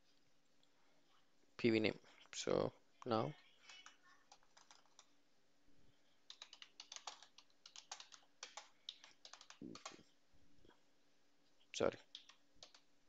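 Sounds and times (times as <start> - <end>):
typing on computer keyboard: 3.6 - 5.1, 6.3 - 10.0, 12.0 - 12.9.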